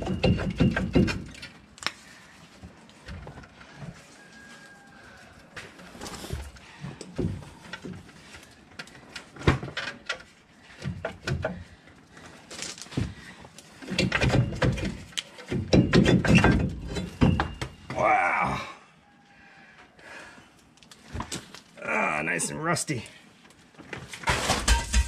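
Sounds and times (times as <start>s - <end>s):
metal knocks and scraping: 0.0s - 1.6s, 13.8s - 17.9s.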